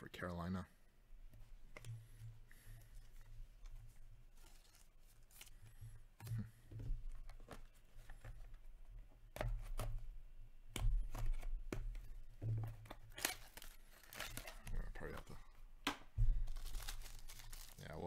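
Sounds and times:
plastic wrap crinkling: 12.9s - 15.4s, 16.2s - 18.0s.

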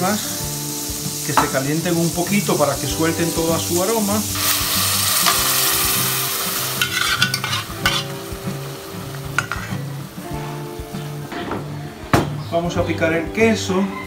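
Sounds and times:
sauce being poured: 0.0s - 10.9s
butter sizzling in pot: 0.0s - 11.3s
metal spoon clinking on pot: 6.8s - 8.1s.

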